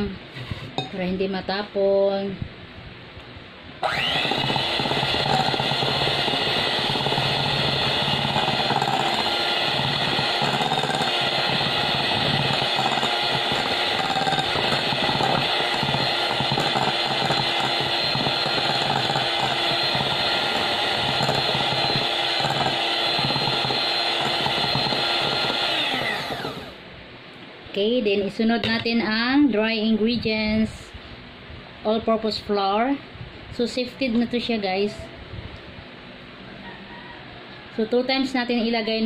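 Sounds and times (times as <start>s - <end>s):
electric hand mixer whisking batter: 3.8s - 26.8s.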